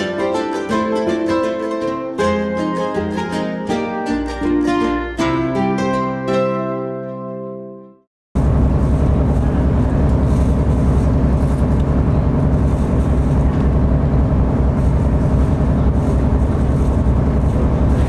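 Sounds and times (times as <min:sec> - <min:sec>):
boat engine low drone: 0:08.4 - 0:18.0.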